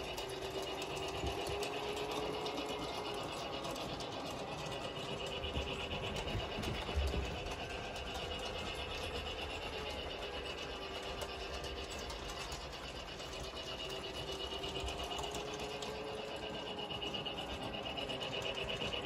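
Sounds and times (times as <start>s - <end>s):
toy train motor whirring: 0.0s - 19.0s.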